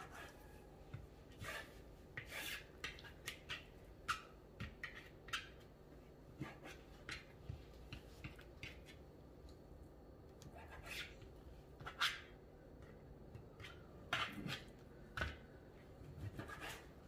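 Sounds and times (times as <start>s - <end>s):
knife scraping cutting board: 0.0s - 0.6s, 1.3s - 5.6s, 6.4s - 7.3s, 10.5s - 15.4s, 16.1s - 17.0s.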